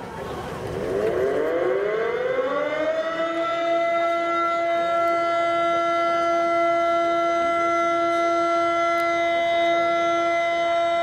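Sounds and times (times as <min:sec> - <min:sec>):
warning siren winding up: 0:01.1 - 0:11.0.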